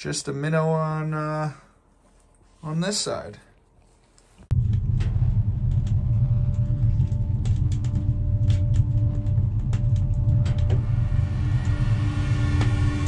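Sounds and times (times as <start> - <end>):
faint hum: 3.4 - 13.0
loud low rumble: 4.5 - 13.0.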